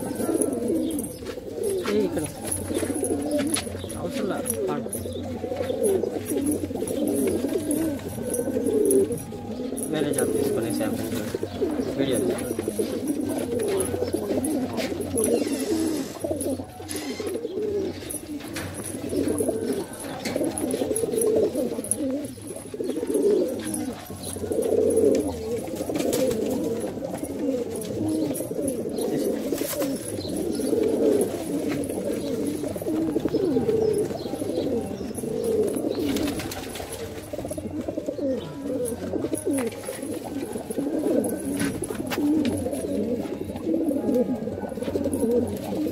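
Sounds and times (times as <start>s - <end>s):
pigeons cooing: 0.0s - 45.9s.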